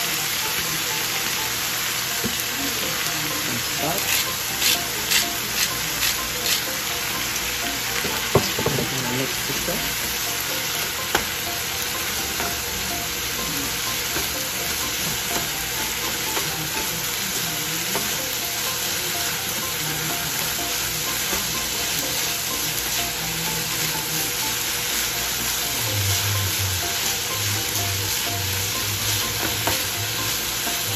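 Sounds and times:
rice sizzling in a frying pan: 0:00.0 - 0:30.9
spatula knocking on pan: 0:08.0 - 0:08.9.

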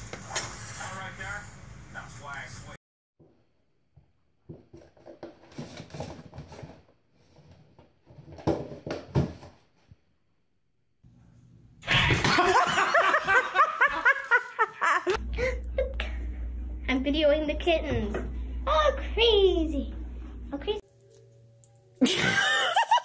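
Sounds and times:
loud laughter: 0:11.8 - 0:15.2, 0:22.0 - 0:23.0.

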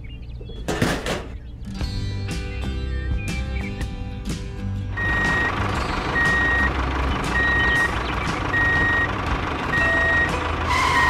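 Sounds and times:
engine rumble: 0:04.2 - 0:11.0
truck reversing alarm beeping: 0:05.0 - 0:11.0.

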